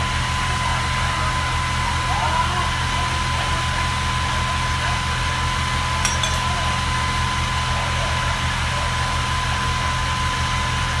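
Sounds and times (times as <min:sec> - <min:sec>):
light clinks: 0:06.0 - 0:06.6.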